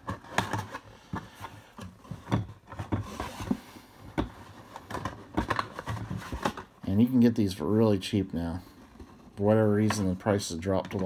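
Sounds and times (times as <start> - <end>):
cardboard rustling and scraping: 0.0 - 7.8.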